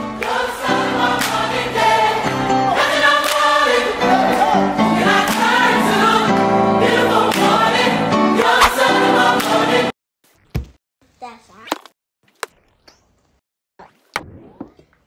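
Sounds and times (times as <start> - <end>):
choir singing: 0.0 - 10.0.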